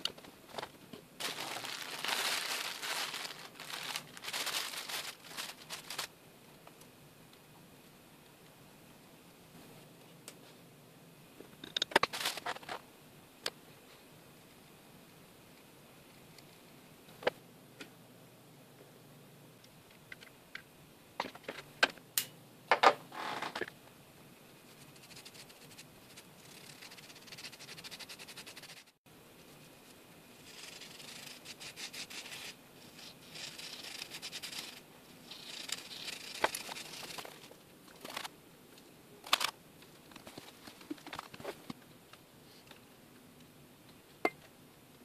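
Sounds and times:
plastic wrapper crinkling: 0:01.2 - 0:06.1.

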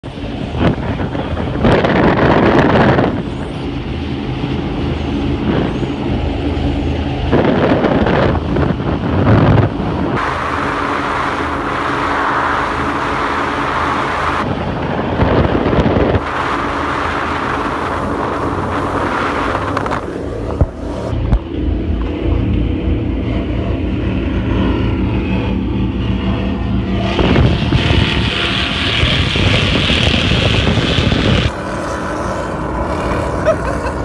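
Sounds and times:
powerboat engines droning: 0:00.0 - 0:34.0
wind buffeting microphone: 0:00.0 - 0:34.0
water rushing past: 0:16.0 - 0:21.2.

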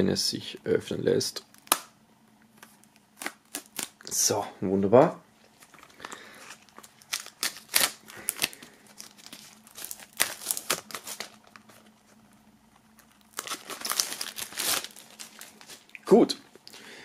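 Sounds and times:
plastic film crinkling: 0:05.5 - 0:16.0.

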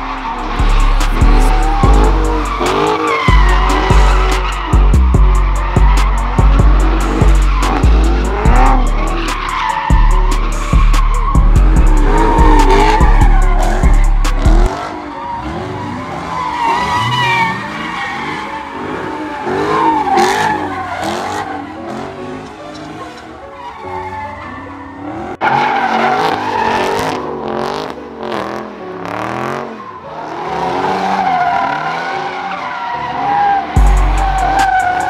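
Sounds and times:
bass-thumping music beat: 0:00.0 - 0:14.7, 0:33.8 - 0:35.0
tyres squealing: 0:00.0 - 0:27.0, 0:31.0 - 0:35.0
car engines revving: 0:00.0 - 0:35.0.

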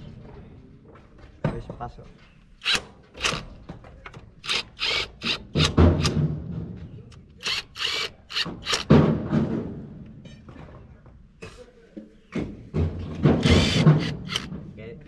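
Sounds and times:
cordless drill spinning bolts: 0:04.4 - 0:05.7, 0:07.4 - 0:08.9, 0:13.4 - 0:14.5.

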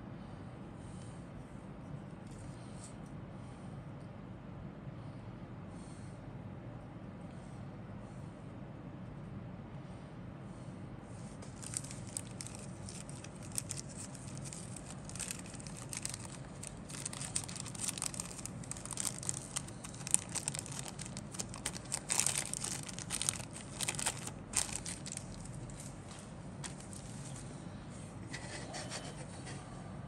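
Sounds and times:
low steady hum: 0:00.0 - 0:30.0
plastic parts clicking and rustling: 0:11.4 - 0:25.9.

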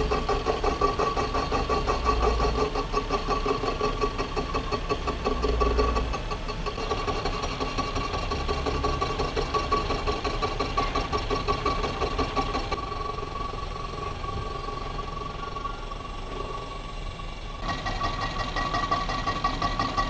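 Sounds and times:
hiss: 0:00.0 - 0:20.0
milling machine whine: 0:00.0 - 0:20.0
rough pulsing cutting noise: 0:00.0 - 0:20.0.

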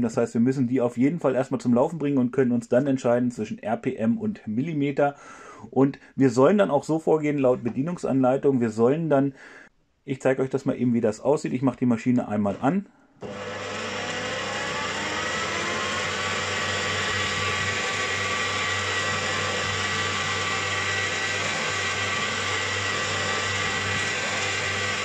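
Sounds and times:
drill press motor whine: 0:13.2 - 0:25.0.

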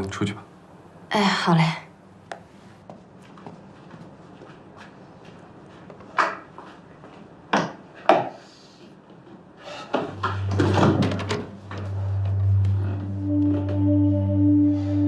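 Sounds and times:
low music drone: 0:10.1 - 0:15.0.

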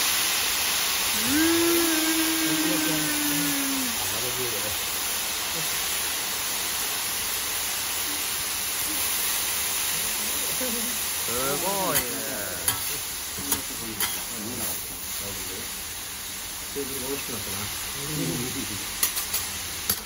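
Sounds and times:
noodles sizzling on a griddle: 0:00.0 - 0:20.0.

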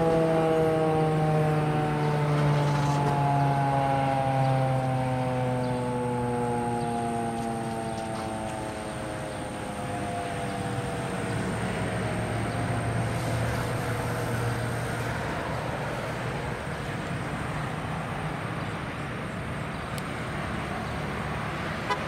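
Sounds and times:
siren winding down: 0:00.0 - 0:15.5
road traffic: 0:00.0 - 0:22.0
vehicle passing by: 0:00.0 - 0:22.0.

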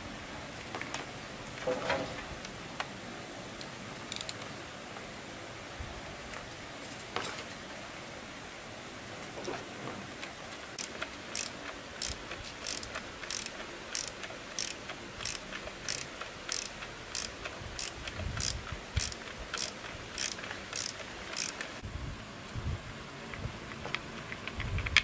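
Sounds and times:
ratchet wrench clicking: 0:04.1 - 0:04.4, 0:10.8 - 0:21.8.

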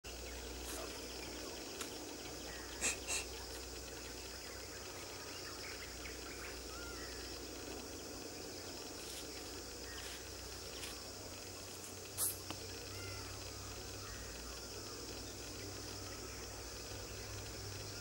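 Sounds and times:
insects chirring: 0:00.1 - 0:18.0
short bird calls: 0:02.4 - 0:03.5.

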